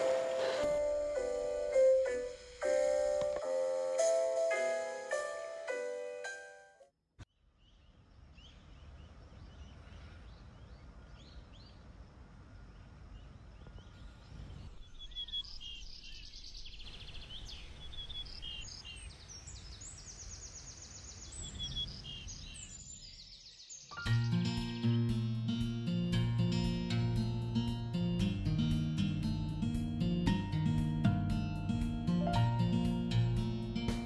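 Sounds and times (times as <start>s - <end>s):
small birds chirping: 7.3s - 25.2s.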